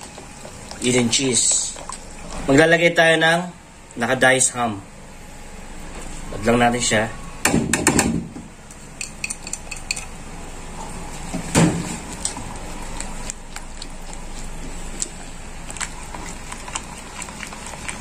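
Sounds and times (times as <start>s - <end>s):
whisk stirring thick sauce: 0.0s - 2.8s.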